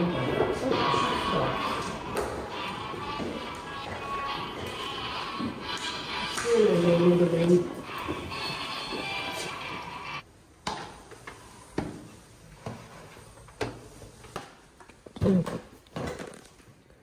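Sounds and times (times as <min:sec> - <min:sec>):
footsteps on a staircase: 0:00.0 - 0:10.1.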